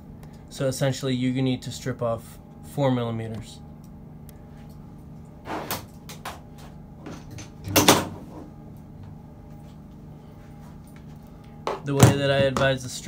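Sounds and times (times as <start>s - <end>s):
faint steady hum: 0.0s - 13.0s
objects clattering on a desk: 5.6s - 8.5s.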